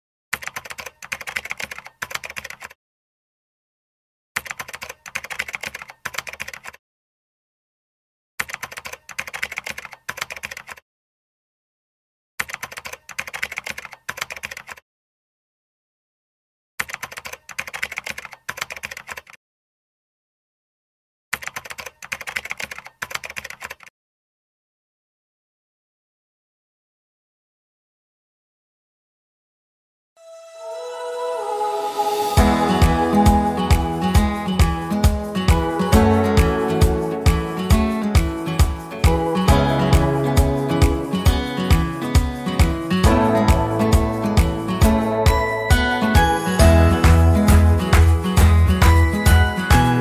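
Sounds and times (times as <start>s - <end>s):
keyboard keys clicking: 0.4s - 2.7s, 4.4s - 6.8s, 8.4s - 10.8s, 12.4s - 14.8s, 16.8s - 19.4s, 21.4s - 23.9s, 32.8s - 50.0s.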